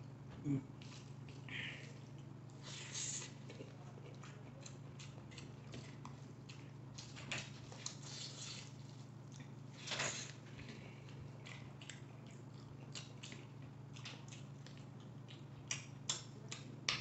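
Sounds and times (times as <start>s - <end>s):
steady low hum: 0.0s - 17.0s
wet chewing smacks: 3.2s - 7.1s, 10.2s - 17.0s.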